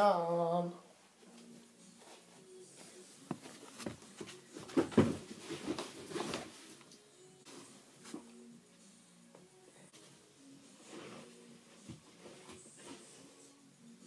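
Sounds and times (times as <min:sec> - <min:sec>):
bare feet on carpeted stairs: 0:03.2 - 0:05.8.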